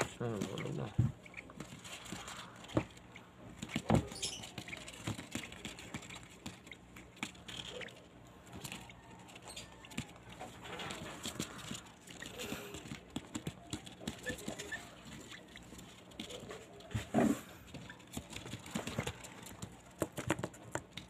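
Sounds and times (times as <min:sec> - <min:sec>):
baby birds squeaky begging calls: 0:03.9 - 0:05.1.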